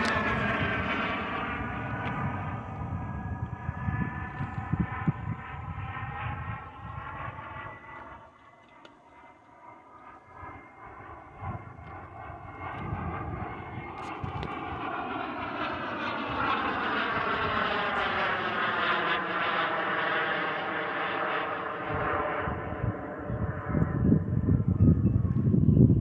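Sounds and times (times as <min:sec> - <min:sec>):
model jet engine whine: 0:00.0 - 0:26.0.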